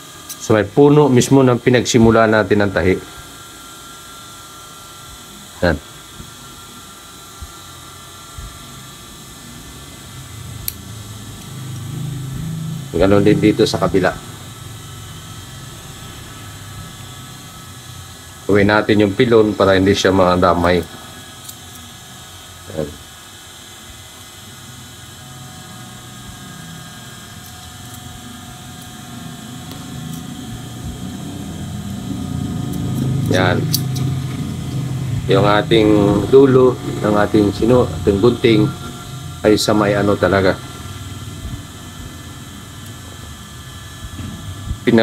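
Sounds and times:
steady mechanical hum: 0.0s - 45.0s
shears snipping fabric: 32.6s - 34.9s.

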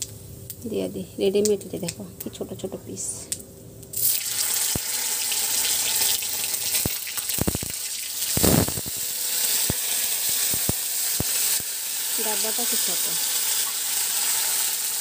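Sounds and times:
oil popping: 3.9s - 11.6s
food sizzling in hot oil: 3.9s - 15.0s.

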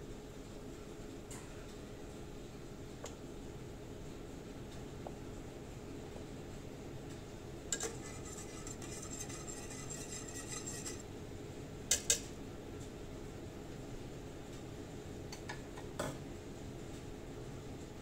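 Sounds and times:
whisk scraping a metal pot: 7.8s - 11.0s.

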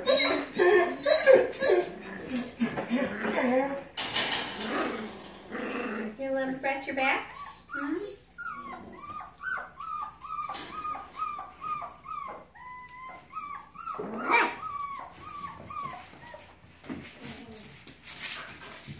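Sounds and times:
puppies whining and yelping: 0.0s - 4.0s, 7.2s - 17.7s.

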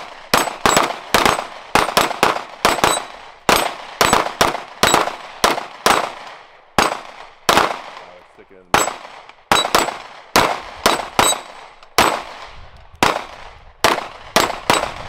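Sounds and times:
rapid pistol fire: 0.0s - 15.0s
steel targets ringing: 2.7s - 4.2s, 11.2s - 11.6s.

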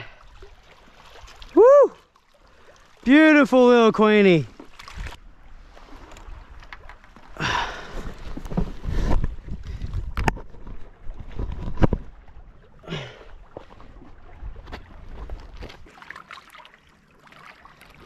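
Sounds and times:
wind rumbling on microphone: 7.6s - 12.7s
camera handling scrapes and knocks: 10.0s - 10.8s.

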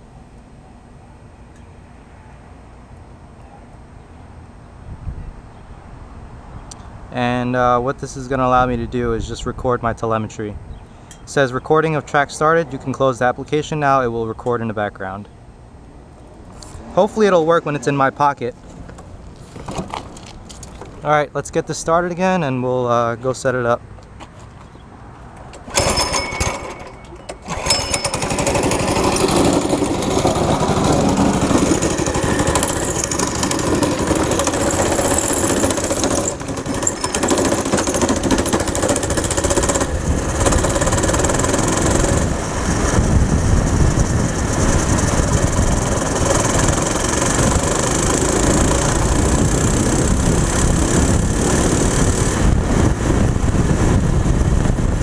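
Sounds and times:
go-kart engine revving: 25.7s - 53.4s.

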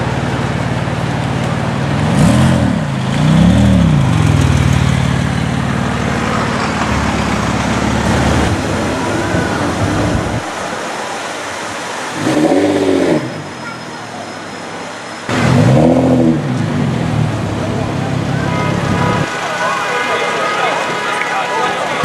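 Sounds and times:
street traffic: 0.0s - 22.0s
car engine revving: 1.9s - 10.4s, 15.3s - 18.4s.

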